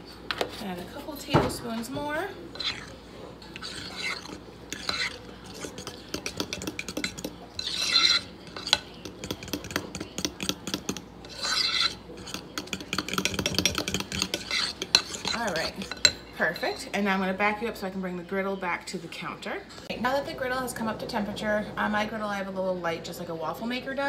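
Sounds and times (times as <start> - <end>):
spoon stirring batter in bowl: 0.3 - 17.0.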